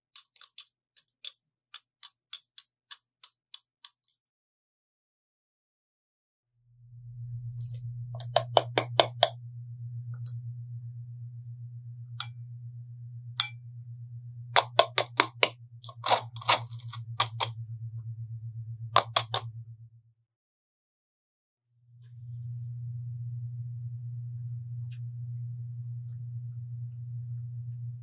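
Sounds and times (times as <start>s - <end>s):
steady low hum: 6.6s - 20.2s, 21.8s - 28.0s
metal sieve clinking: 14.6s - 17.5s.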